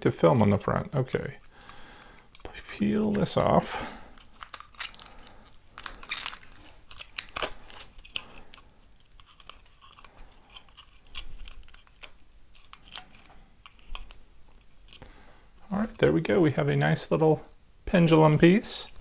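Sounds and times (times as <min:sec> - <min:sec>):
plastic film crinkling: 0:01.6 - 0:15.1.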